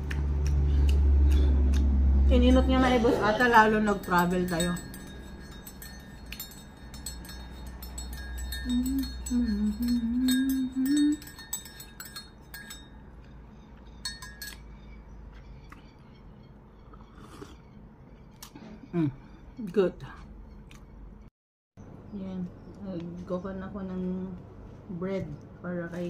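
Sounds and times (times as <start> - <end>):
metal spoon clinking in ceramic mug: 3.5 - 13.2, 14.0 - 14.7
person humming: 8.6 - 11.4.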